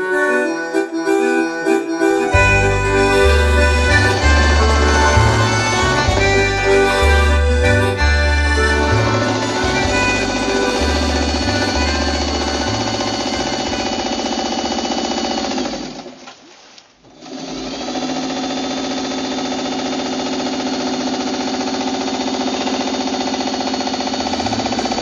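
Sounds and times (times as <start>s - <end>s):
sewing machine running: 12.0s - 16.1s, 17.2s - 25.0s.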